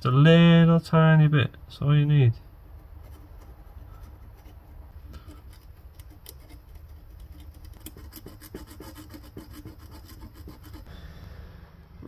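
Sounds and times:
emery paper scratching on metal: 0:02.7 - 0:10.9.

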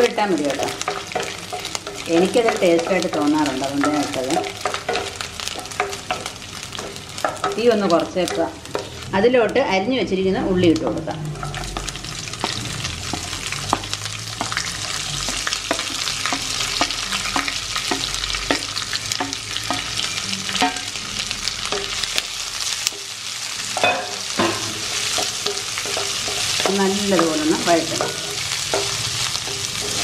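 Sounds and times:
shallots sizzling in hot oil: 0:00.0 - 0:30.0
wooden spatula scraping: 0:24.8 - 0:30.0.

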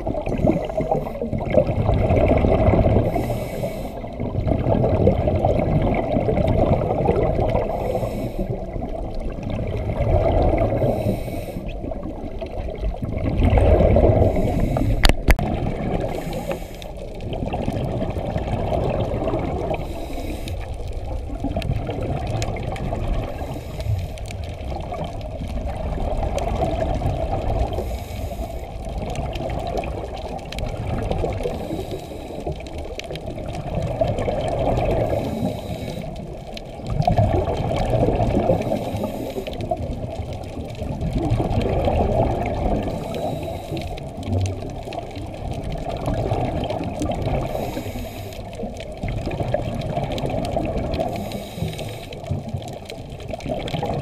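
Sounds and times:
rush of exhaled bubbles: 0:00.0 - 0:54.0
regulator inhale hiss: 0:03.0 - 0:04.2, 0:07.6 - 0:08.7, 0:10.7 - 0:11.8, 0:14.2 - 0:15.3, 0:16.0 - 0:17.1, 0:19.7 - 0:20.9, 0:23.3 - 0:24.3, 0:27.7 - 0:28.8, 0:31.4 - 0:32.6, 0:35.0 - 0:36.3, 0:38.5 - 0:39.8, 0:42.9 - 0:44.1, 0:47.4 - 0:48.7, 0:51.0 - 0:52.4.

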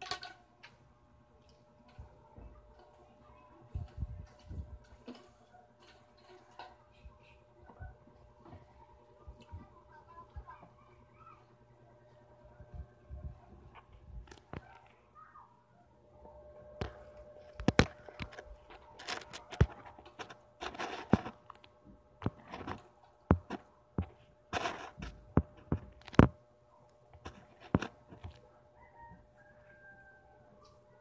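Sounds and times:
rustling: 0:16.8 - 0:26.3.

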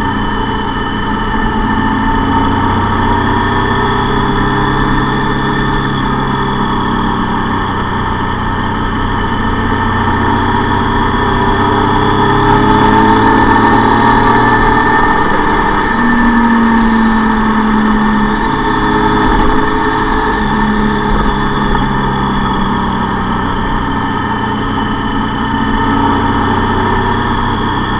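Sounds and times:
vehicle engine running: 0:00.0 - 0:27.9.

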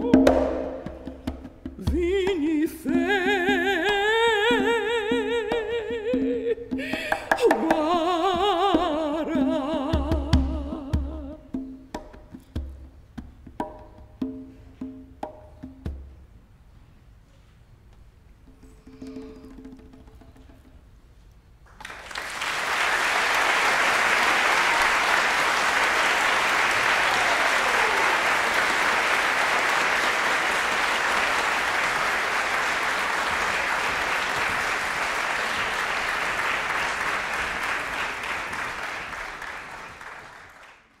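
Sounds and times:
audience applauding: 0:21.7 - 0:41.0.

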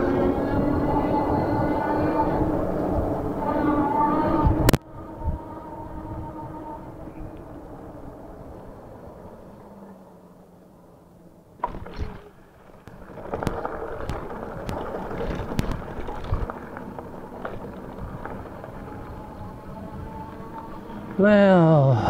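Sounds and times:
e-bike motor humming: 0:00.0 - 0:22.0
tyres crunching over gravel: 0:11.8 - 0:21.2.

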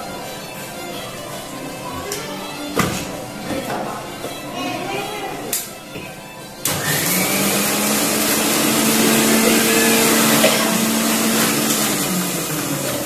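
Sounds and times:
mixer grinder motor running: 0:06.6 - 0:13.0.

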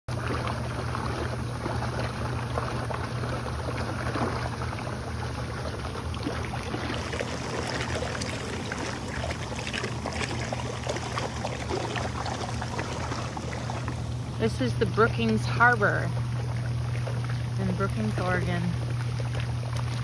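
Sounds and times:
jet pump hum: 0:00.1 - 0:20.0
water churning and bubbling: 0:00.1 - 0:20.0.

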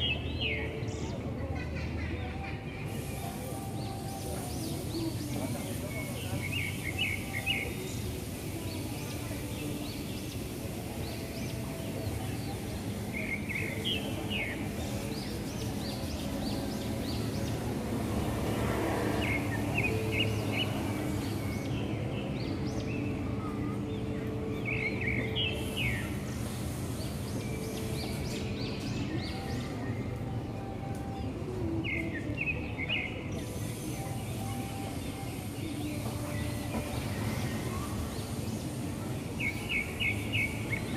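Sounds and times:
street traffic rumbling: 0:00.0 - 0:40.9
motorbikes passing: 0:09.5 - 0:40.9.

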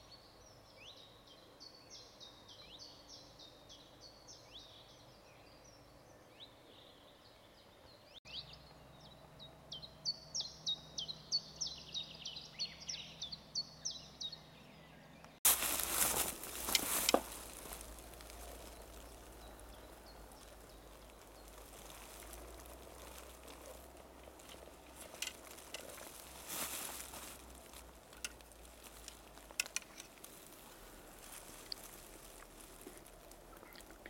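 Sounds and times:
ants rustling in pine needles: 0:15.4 - 0:34.0.

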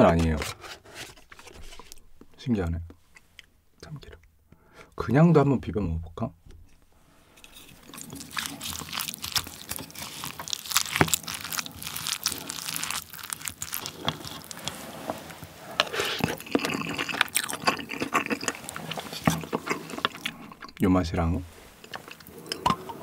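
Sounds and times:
sauced rice squishing: 0:07.4 - 0:23.0.

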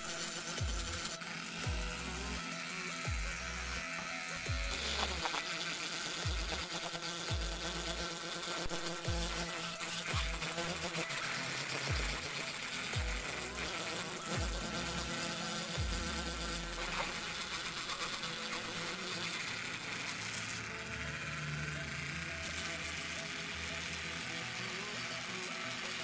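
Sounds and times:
burr rasping metal: 0:00.0 - 0:26.0
rotary grinder whining: 0:00.0 - 0:26.0.

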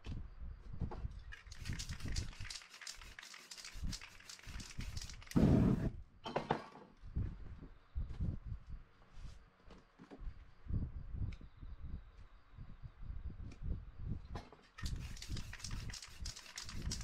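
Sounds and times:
spray paint can hissing: 0:01.3 - 0:05.9, 0:14.8 - 0:17.0.

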